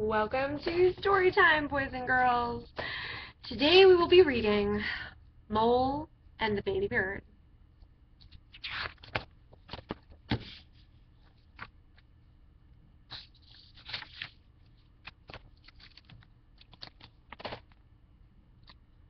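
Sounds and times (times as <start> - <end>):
paper rustling: 8.2 - 12.1, 13.1 - 17.9
book pages turning: 8.2 - 12.2, 13.0 - 17.9, 18.6 - 18.8.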